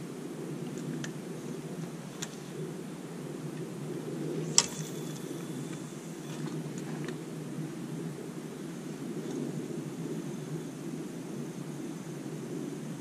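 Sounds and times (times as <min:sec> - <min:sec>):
fishing reel ticks and click: 0:04.5 - 0:07.1.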